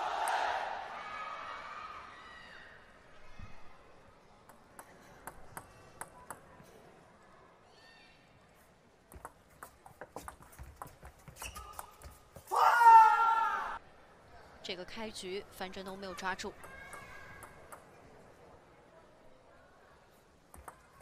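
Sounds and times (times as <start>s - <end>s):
table tennis rally: 4.4s - 6.9s, 9.1s - 12.6s, 15.6s - 18.4s, 20.4s - 21.0s
table tennis ball clicking: 16.5s - 18.0s, 20.5s - 21.0s.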